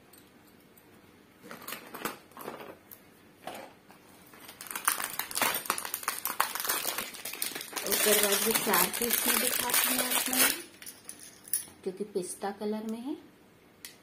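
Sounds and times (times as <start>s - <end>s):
plastic box clicking and crinkling: 4.5s - 10.6s.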